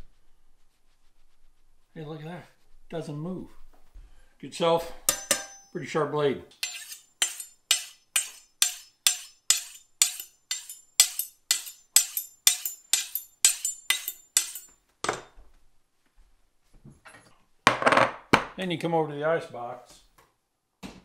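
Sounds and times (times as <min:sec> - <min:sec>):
knife honing on steel: 0:05.1 - 0:05.7, 0:06.6 - 0:14.8.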